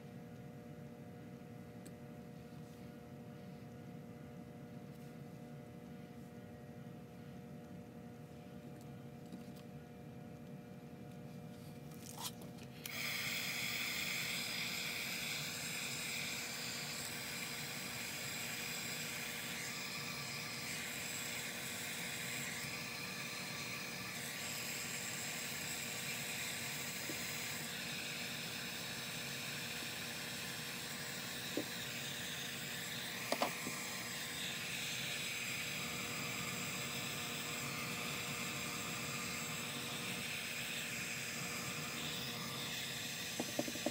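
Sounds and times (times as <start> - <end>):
heat tool blowing: 12.8 - 43.9.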